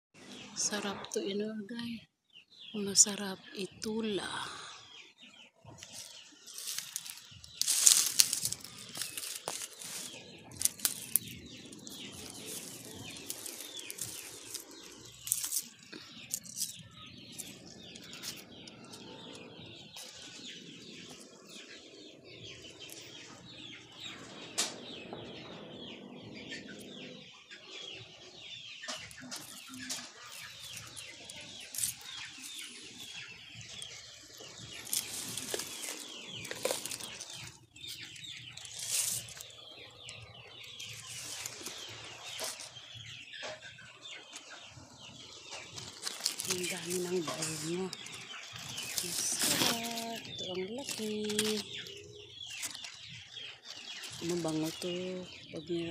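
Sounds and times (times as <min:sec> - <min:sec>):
small birds chirping: 0:00.2 - 0:55.9
chickens clucking: 0:03.8 - 0:55.9
leaves rustling: 0:05.8 - 0:24.1, 0:29.0 - 0:43.0, 0:44.3 - 0:55.9.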